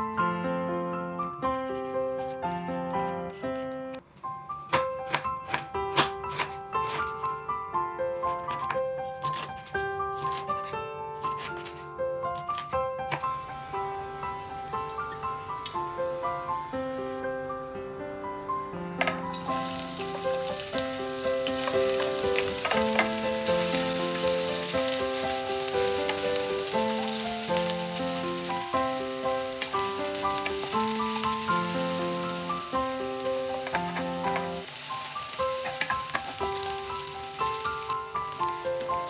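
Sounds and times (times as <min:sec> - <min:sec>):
background music melody: 0:00.0 - 0:39.0
meat sizzling in a pan: 0:19.3 - 0:39.0.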